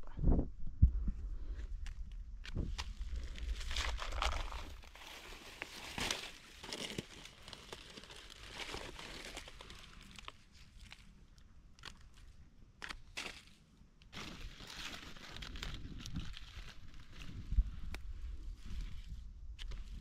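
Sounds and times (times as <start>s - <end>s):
dry leaves crunching: 3.2s - 11.0s.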